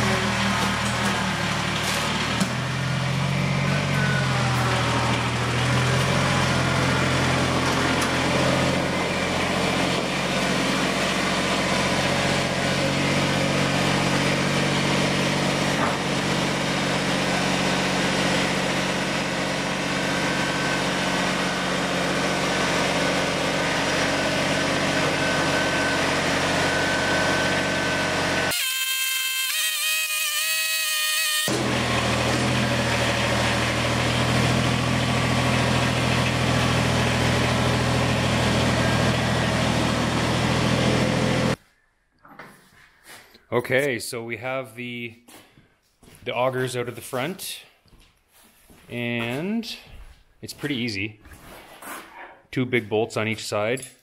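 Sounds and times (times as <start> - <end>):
machine droning: 0.0 - 41.6.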